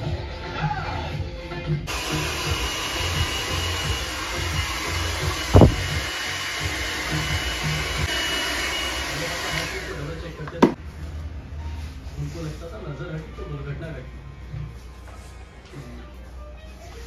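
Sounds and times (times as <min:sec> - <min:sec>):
hair dryer blowing: 0:01.9 - 0:10.7.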